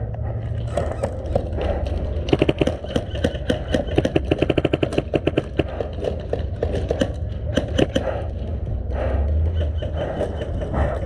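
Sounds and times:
airsoft gun bursts: 0:02.3 - 0:05.7.

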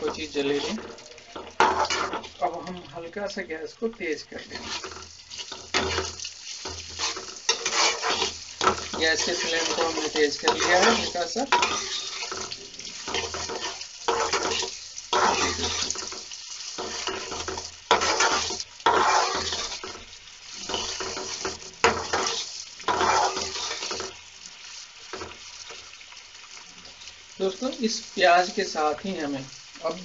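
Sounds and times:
steel spatula scraping pan: 0:00.0 - 0:02.4, 0:04.4 - 0:24.2
food sizzling in hot oil: 0:00.0 - 0:30.0.

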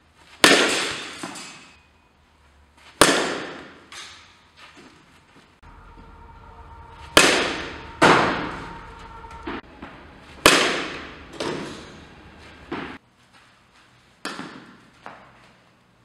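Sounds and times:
bat striking ball: 0:00.4 - 0:01.7, 0:03.0 - 0:04.2.

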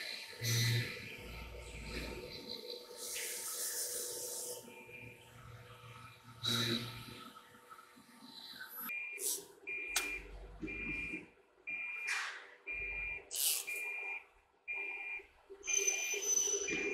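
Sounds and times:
electronic warning beeps: 0:00.0 - 0:05.5, 0:08.9 - 0:16.9.

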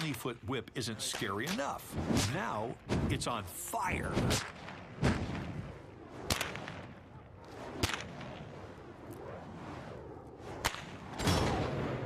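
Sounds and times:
bullwhip cracking: 0:04.1 - 0:05.5, 0:06.2 - 0:09.4, 0:10.4 - 0:11.6.

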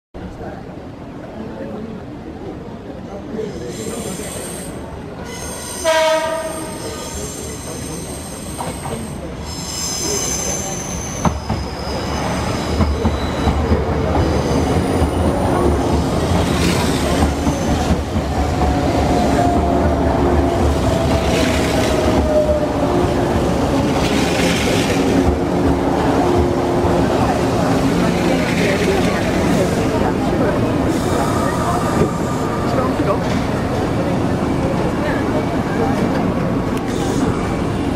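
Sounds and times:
wheels or brakes squealing: 0:03.7 - 0:05.9, 0:06.5 - 0:15.2
train horn blast: 0:05.8 - 0:07.0
rumble of wheels on rails: 0:11.2 - 0:37.9.

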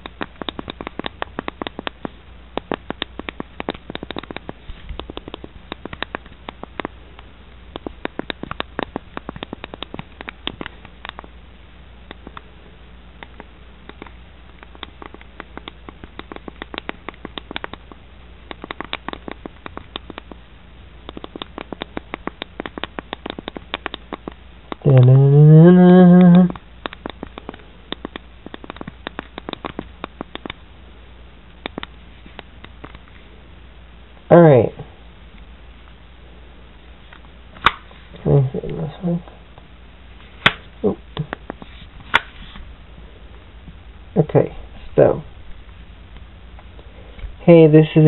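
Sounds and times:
keyboard keys clicking: 0:00.0 - 0:07.0, 0:07.8 - 0:11.3, 0:13.2 - 0:20.4, 0:21.1 - 0:24.8, 0:26.2 - 0:30.6.

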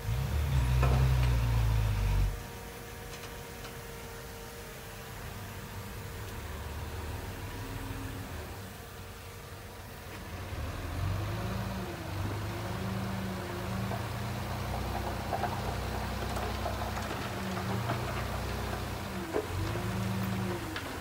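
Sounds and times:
truck engine revving: 0:00.0 - 0:02.4, 0:10.2 - 0:21.0
rocky soil clattering: 0:10.1 - 0:21.0.

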